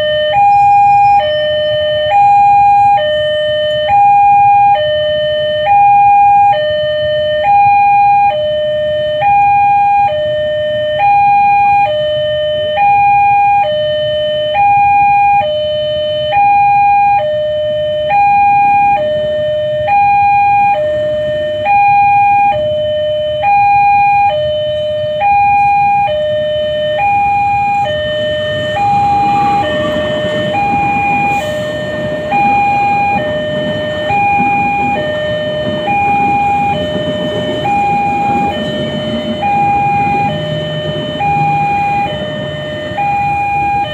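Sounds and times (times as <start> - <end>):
two-tone crossing alarm: 0.0 - 43.9
passenger train passing: 19.7 - 22.6, 27.0 - 43.9.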